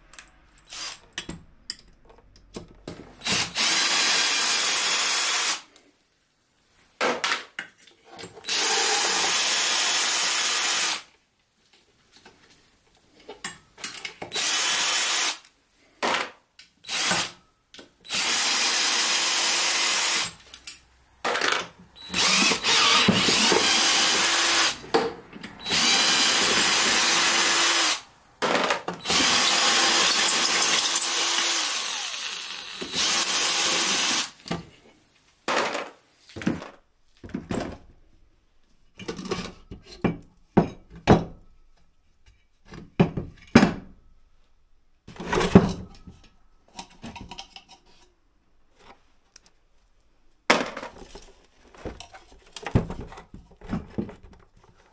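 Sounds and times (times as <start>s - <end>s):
cordless drill whirring: 3.2s - 5.6s, 18.1s - 20.3s, 22.0s - 24.8s, 25.6s - 28.1s, 29.0s - 34.4s
parts knocking and clattering: 20.6s - 31.8s, 35.5s - 38.0s, 38.9s - 44.0s, 45.1s - 48.0s, 50.5s - 54.9s.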